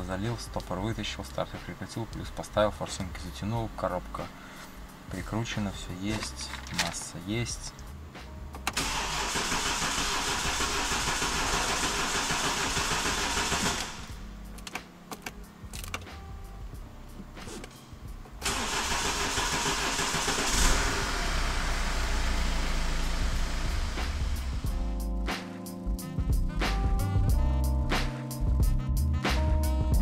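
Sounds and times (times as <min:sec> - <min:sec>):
engine starter cranking: 0:08.6 - 0:14.8, 0:18.4 - 0:22.1
diesel engine running rumble: 0:18.3 - 0:24.9.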